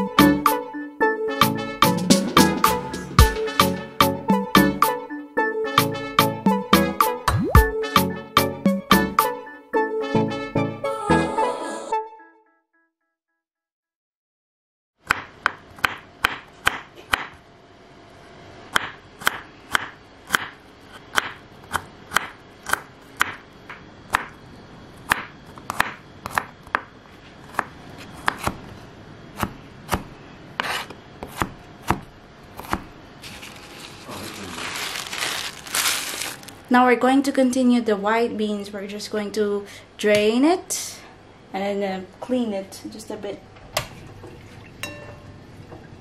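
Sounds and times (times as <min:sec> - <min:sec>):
knife chopping on wooden board: 0:15.0 - 0:17.4, 0:18.7 - 0:23.4, 0:25.1 - 0:26.9, 0:27.5 - 0:28.6, 0:29.4 - 0:32.9.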